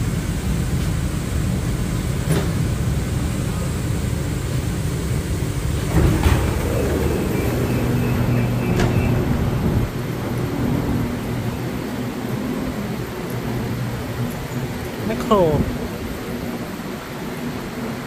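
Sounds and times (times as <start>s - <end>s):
train low rumble: 0.0s - 18.0s
train doors thumping open: 2.0s - 12.0s.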